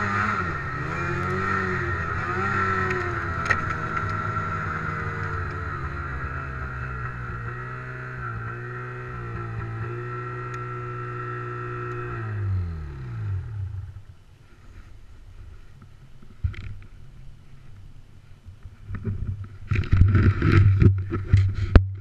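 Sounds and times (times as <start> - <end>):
snowmobile engine: 0.0 - 15.0
rough rumbling and scraping: 0.0 - 22.0.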